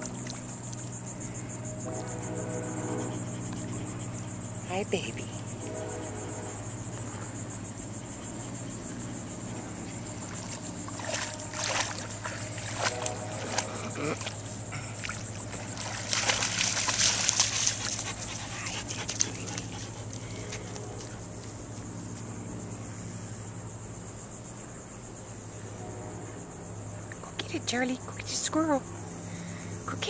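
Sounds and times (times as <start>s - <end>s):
dog splashing through water: 0.0s - 1.0s, 9.8s - 21.2s
insects chirring: 0.0s - 30.0s.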